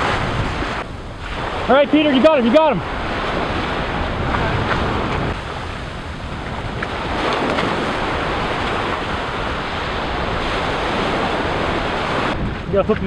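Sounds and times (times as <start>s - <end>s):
ocean surf washing in: 0.0s - 13.0s.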